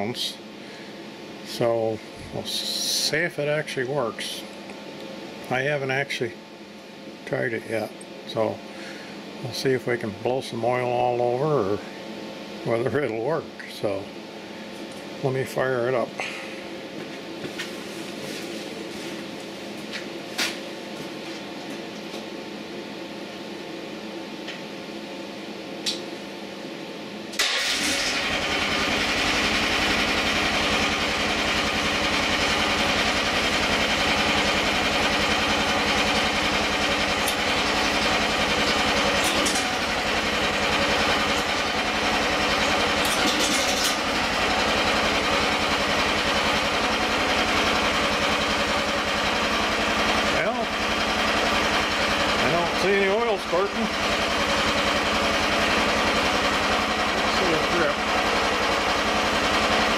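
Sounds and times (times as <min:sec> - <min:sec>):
excavator engine starting and running: 0:27.3 - 0:59.9.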